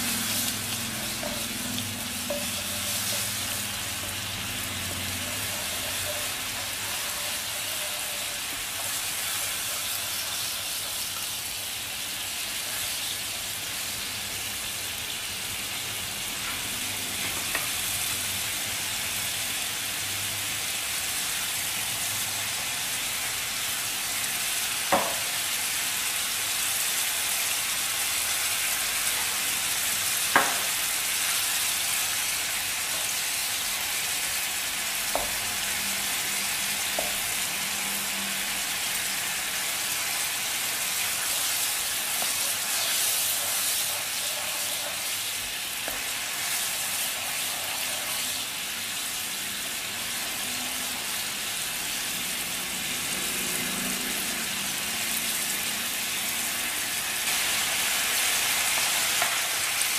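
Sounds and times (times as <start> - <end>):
spatula stirring in pan: 0.0 - 11.3, 40.0 - 48.5
sugar sizzling in hot oil: 0.0 - 59.9.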